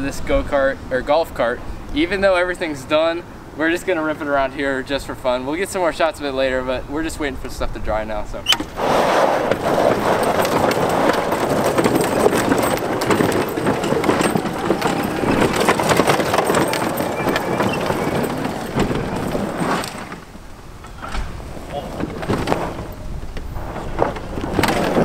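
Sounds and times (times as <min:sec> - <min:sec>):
tyres crunching on gravel: 0:09.5 - 0:25.0.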